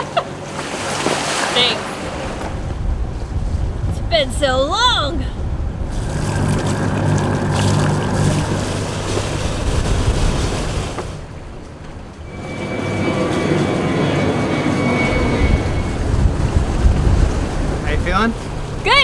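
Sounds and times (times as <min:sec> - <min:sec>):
boat engine hum: 0:00.0 - 0:19.0
water rushing along hull: 0:00.0 - 0:19.0
wind on microphone: 0:01.6 - 0:19.0
faint high whine: 0:05.8 - 0:16.8.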